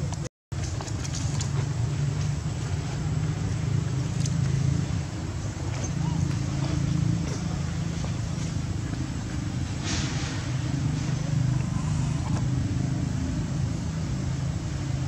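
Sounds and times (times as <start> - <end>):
low mechanical hum: 0.0 - 15.0
short hiss: 9.8 - 10.5.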